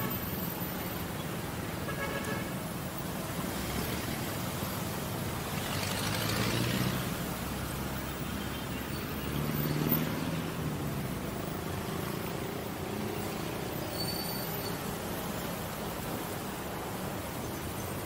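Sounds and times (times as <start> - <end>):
vehicle engines running: 2.6 - 13.8.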